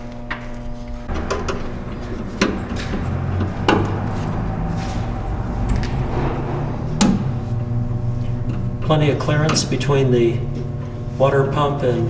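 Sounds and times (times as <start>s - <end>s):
sharp knocks and clicks: 1.1s - 4.6s
low rumble: 1.1s - 11.5s.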